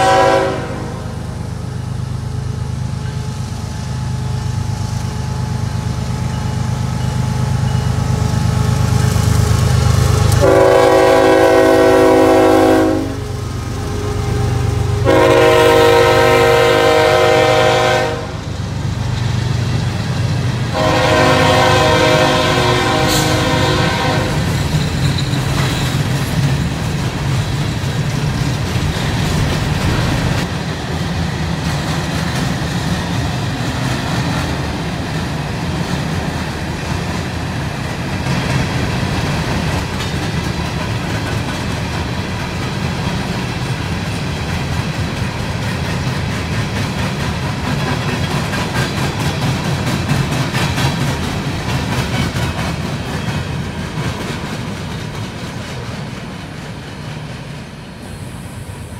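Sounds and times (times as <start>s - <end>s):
train horn blasts: 0.0s - 1.3s, 10.4s - 13.3s, 14.8s - 18.5s, 20.7s - 24.6s
freight cars rumbling on rails: 0.0s - 58.9s.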